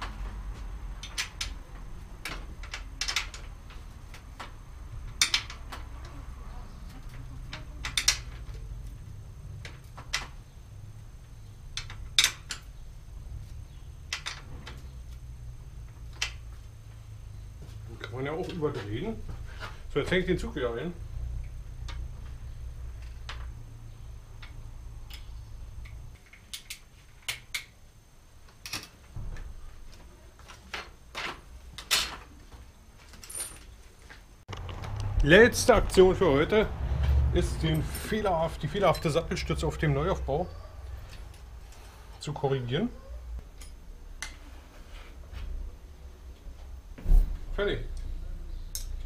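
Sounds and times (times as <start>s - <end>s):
low steady hum: 0.0s - 49.0s
bicycle metallic clicks and rattles: 0.9s - 6.2s, 6.8s - 10.5s, 11.7s - 12.8s, 13.7s - 15.3s, 15.9s - 16.5s, 21.4s - 23.6s, 24.4s - 27.8s, 28.4s - 29.0s, 48.7s - 49.0s.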